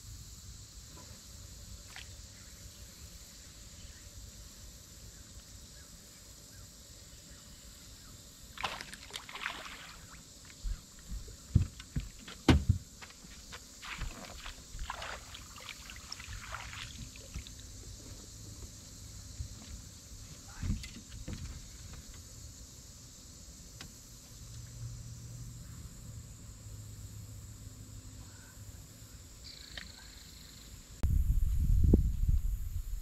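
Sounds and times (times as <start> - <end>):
fish splashing at surface: 8.6 - 10.1, 13.8 - 17.5.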